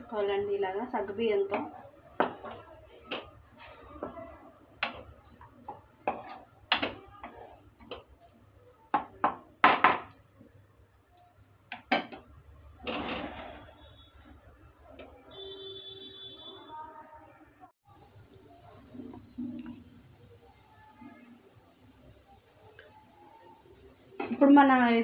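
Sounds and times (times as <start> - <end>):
spatula scraping and knocking pan: 1.4 - 8.2.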